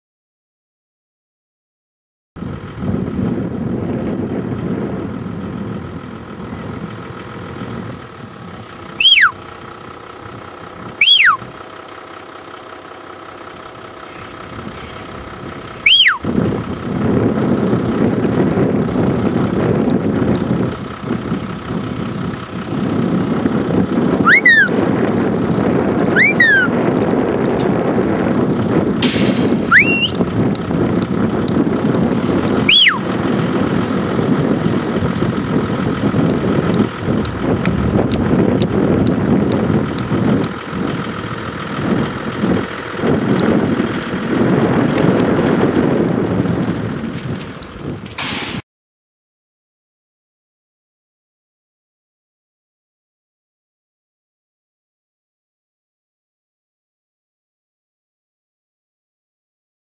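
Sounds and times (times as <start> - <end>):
falling whistles: 9.0 - 9.4, 11.0 - 11.4, 15.8 - 16.2, 24.2 - 24.8, 26.2 - 26.7, 29.6 - 30.2, 32.7 - 33.0
low rumble: 13.4 - 48.6.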